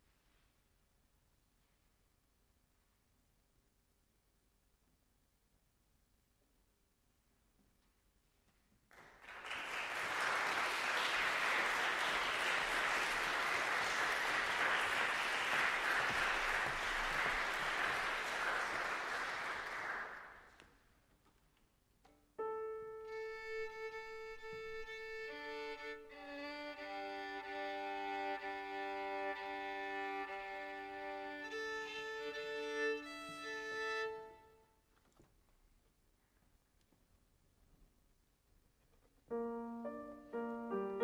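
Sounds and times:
audience applauding: 8.9s - 20.6s
piano: 22.1s - 34.6s, 39.2s - 41.0s
violin: 22.1s - 34.8s.

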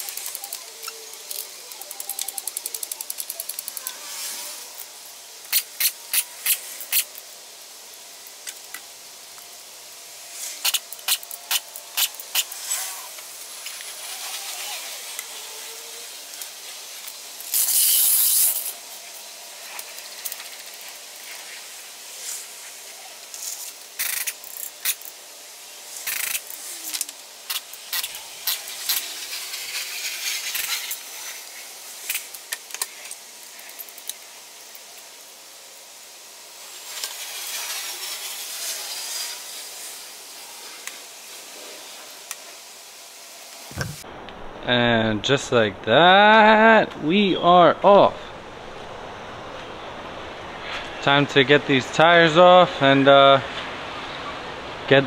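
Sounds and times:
loud air hiss: 3.7s - 44.0s.

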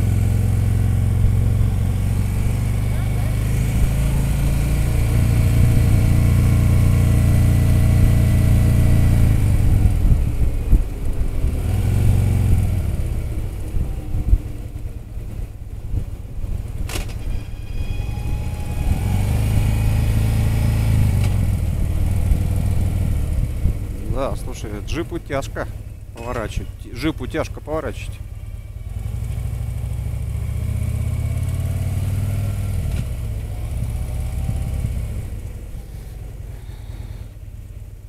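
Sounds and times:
motorcycle engine running: 0.0s - 16.9s, 18.4s - 38.0s
wind noise: 4.9s - 6.9s, 7.8s - 24.9s.

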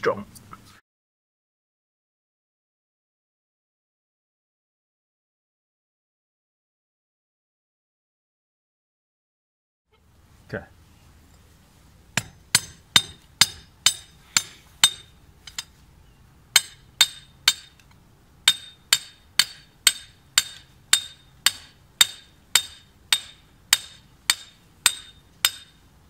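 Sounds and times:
hammer striking steel rod: 12.2s - 15.7s, 16.6s - 25.8s.

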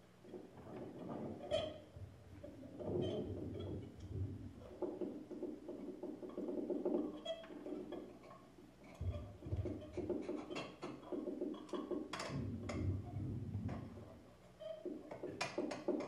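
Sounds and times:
low thuds: 12.3s - 14.2s.

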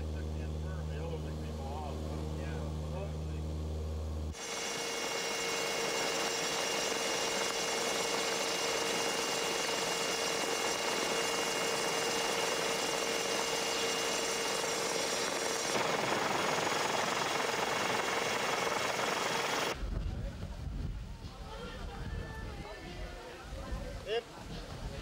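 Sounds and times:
helicopter engine and rotor: 4.3s - 19.8s.

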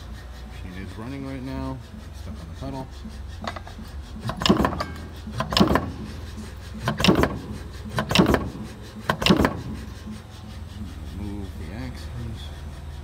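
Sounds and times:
low machine hum: 0.0s - 13.0s
punch press ram clunks: 4.2s - 6.0s, 6.8s - 9.7s.

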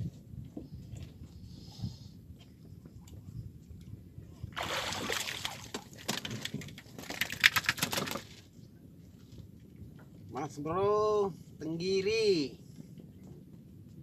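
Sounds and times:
fish splashing and thrashing: 4.6s - 8.5s.

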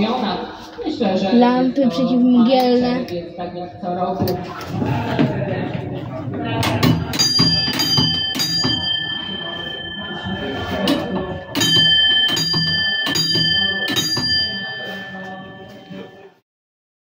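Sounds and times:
tram signal gong clanging: 6.6s - 16.4s.

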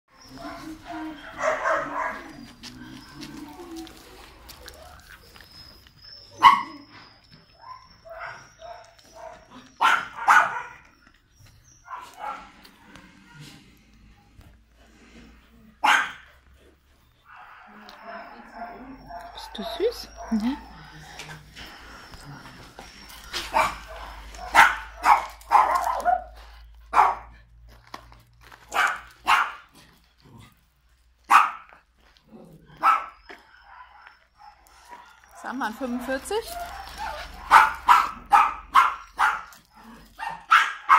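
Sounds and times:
dog barking: 0.3s - 2.4s, 6.4s - 6.9s, 7.7s - 10.9s, 11.9s - 12.5s, 15.8s - 16.3s, 17.3s - 20.7s, 23.4s - 27.3s, 28.7s - 29.7s, 31.3s - 31.7s, 32.8s - 35.1s, 35.8s - 39.6s, 40.2s - 40.9s.

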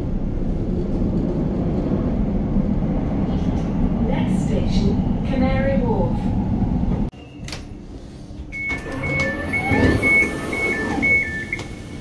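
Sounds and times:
train rumble: 0.0s - 7.1s
two-tone door warning beeps: 8.5s - 12.0s.

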